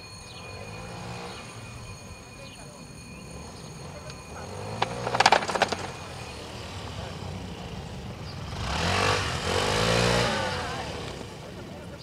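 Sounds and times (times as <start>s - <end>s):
motor scooter engine: 0.0s - 12.0s
sharp clacks: 4.0s - 6.4s.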